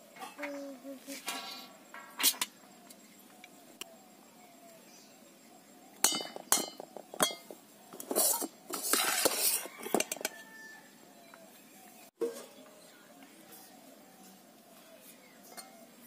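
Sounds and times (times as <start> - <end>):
steel ladle clinking on plates: 6.0 - 7.5, 15.5 - 15.8
ladle scraping: 8.0 - 9.9.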